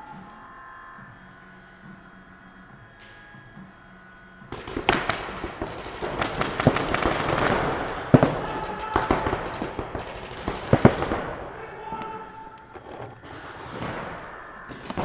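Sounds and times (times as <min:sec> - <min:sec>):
paintball markers firing: 0:04.5 - 0:13.5.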